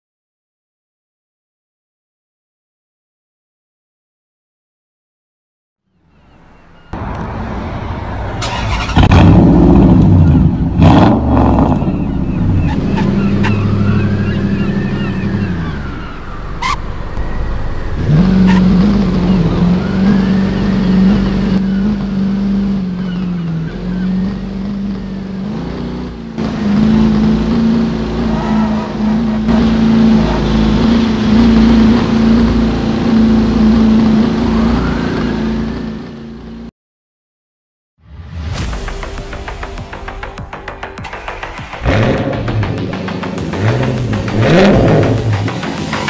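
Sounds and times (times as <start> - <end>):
car engine running: 8.5 - 34.8, 39.0 - 46.0.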